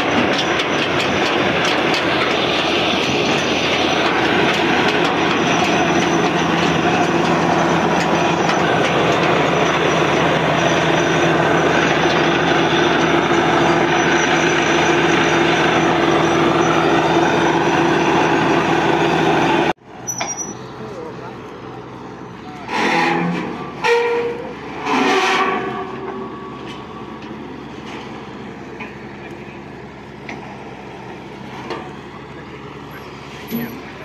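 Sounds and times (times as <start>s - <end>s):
drilling rig running: 0.0s - 34.0s.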